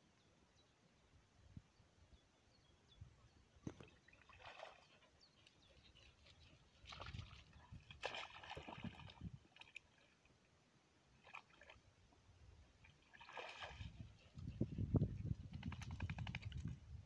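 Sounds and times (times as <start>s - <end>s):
dog splashing into water: 3.7s - 5.0s, 6.8s - 9.9s, 13.0s - 14.1s
dog swimming splashing: 6.6s - 10.0s, 12.9s - 14.2s.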